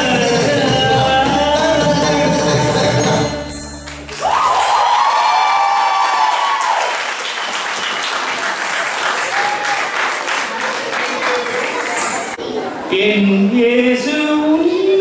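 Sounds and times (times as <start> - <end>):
audience applauding: 3.9 - 12.4.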